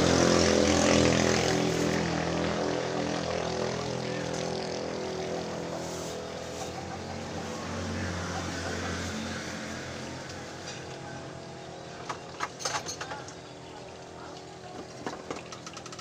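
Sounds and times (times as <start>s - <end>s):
motor engine humming: 0.0s - 12.4s.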